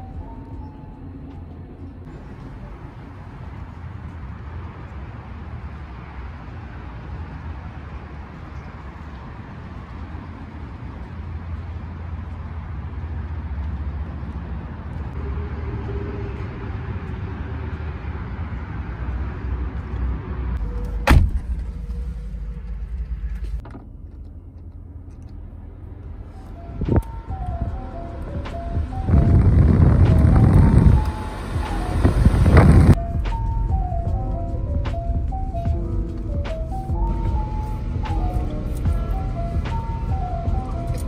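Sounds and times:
low outdoor rumble: 0.0s - 41.0s
car door shutting: 20.7s - 23.9s.

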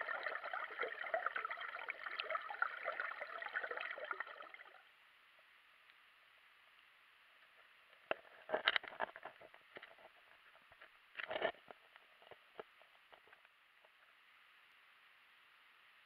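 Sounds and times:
underwater clicks and knocks: 8.0s - 14.0s.

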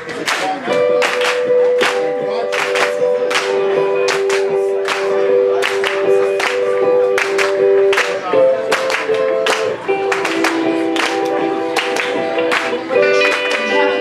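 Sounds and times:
sharp handclaps: 0.0s - 13.8s
audience clapping along: 0.0s - 14.0s
person singing long notes: 12.3s - 14.0s.

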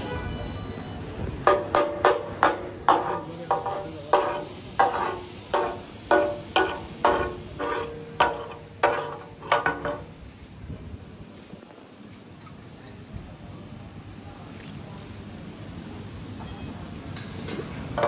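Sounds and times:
spatulas clanging on iron griddle: 1.4s - 10.2s.

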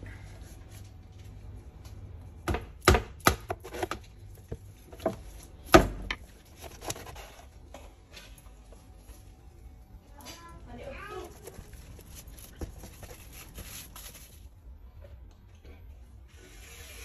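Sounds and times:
knife chopping on wooden board: 2.5s - 4.0s.

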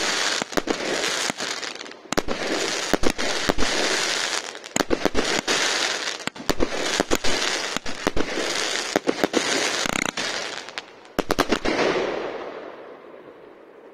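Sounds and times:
firework stars hissing and crackling: 0.0s - 12.6s.

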